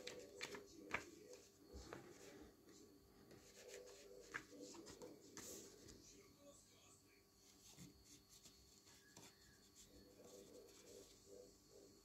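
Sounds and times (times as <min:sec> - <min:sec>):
light clicks of glossy pages: 0:00.0 - 0:01.5
paper pages rustling: 0:00.0 - 0:02.4, 0:03.4 - 0:06.0.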